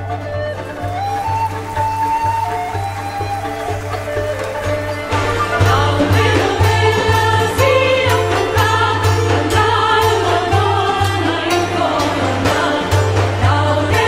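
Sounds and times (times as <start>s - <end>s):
music with steady beat: 1.5s - 14.0s
voices singing: 4.5s - 14.0s.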